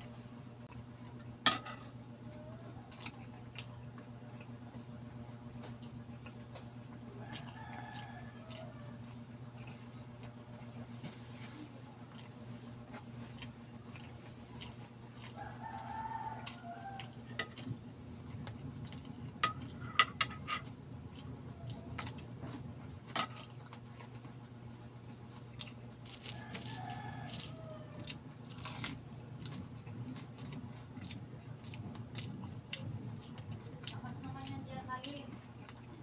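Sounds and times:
low steady hum: 0:00.0 - 0:36.0
chewing and biting egg: 0:00.1 - 0:11.0, 0:11.6 - 0:19.9, 0:20.6 - 0:36.0
rooster crowing: 0:07.1 - 0:09.2, 0:15.2 - 0:17.6, 0:26.1 - 0:28.2.

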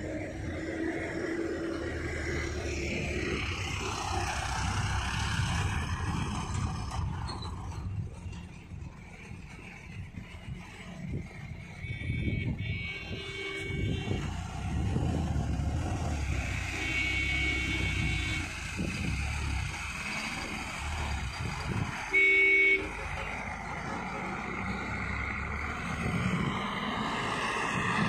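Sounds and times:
truck engine running: 0:00.0 - 0:28.0
vehicle horn: 0:11.8 - 0:14.4, 0:16.3 - 0:18.7, 0:22.1 - 0:23.0.

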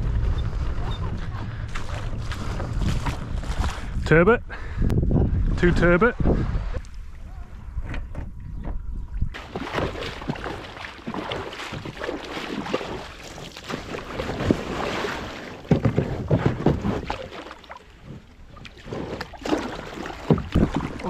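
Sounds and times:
water sloshing around kayak hull: 0:00.0 - 0:04.0, 0:06.1 - 0:21.0
wind buffeting microphone: 0:00.0 - 0:12.0
paddle strokes splashing water: 0:00.2 - 0:03.9, 0:09.4 - 0:21.0.

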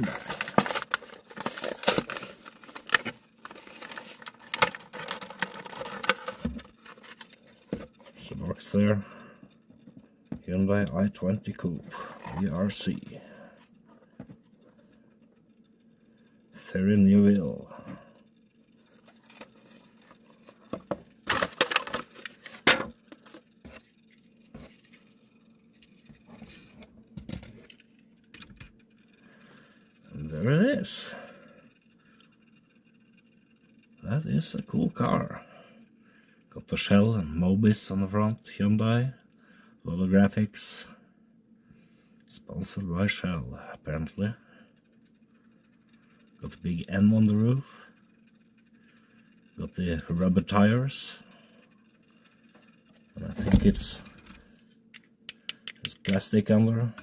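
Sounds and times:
plastic packaging crinkling and clicking: 0:00.0 - 0:08.0, 0:19.0 - 0:23.5.

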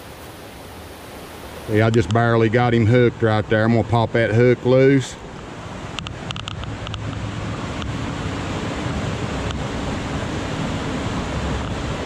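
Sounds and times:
creek water rushing: 0:00.0 - 0:12.0.

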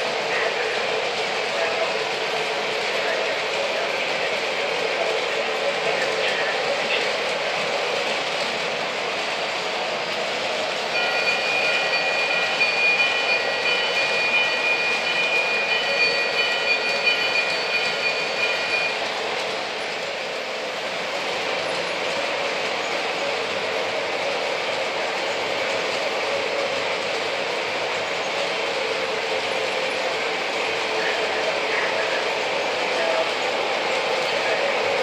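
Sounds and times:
model train wheels rattling on rails: 0:00.0 - 0:20.5.

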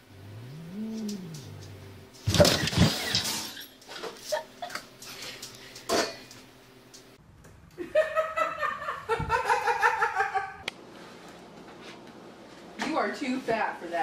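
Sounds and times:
woman laughing: 0:04.2 - 0:04.9, 0:07.8 - 0:10.6.

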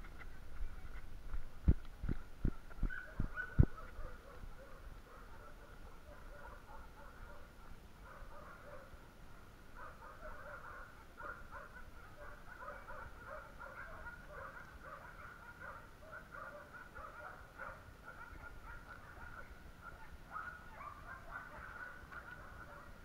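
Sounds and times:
low wind rumble: 0:00.0 - 0:08.2.

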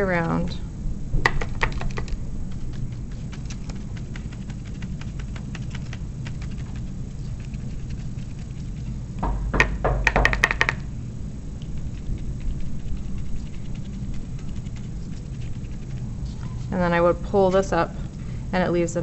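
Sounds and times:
sponge tapping on paper: 0:09.2 - 0:10.8.

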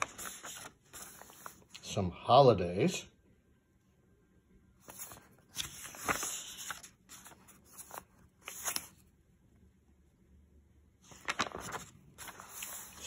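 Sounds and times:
paper pages turning: 0:00.0 - 0:01.8, 0:04.8 - 0:09.1, 0:11.0 - 0:13.0.

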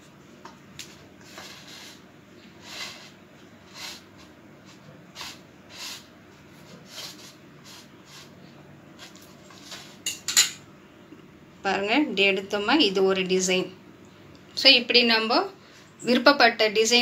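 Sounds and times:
fork scraping dough on plate: 0:01.2 - 0:08.4, 0:09.0 - 0:10.3.

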